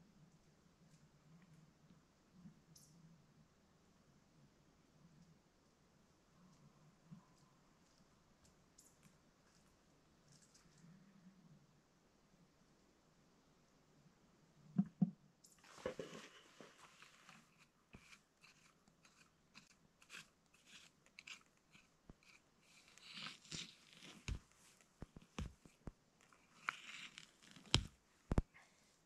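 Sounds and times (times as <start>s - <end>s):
hands raking through pine needles: 15.7s - 24.4s.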